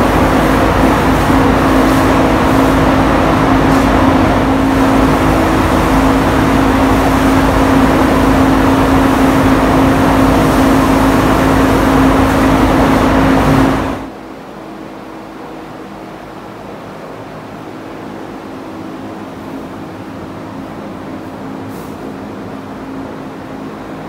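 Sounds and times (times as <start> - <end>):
ventilation fan running: 0.0 - 24.0.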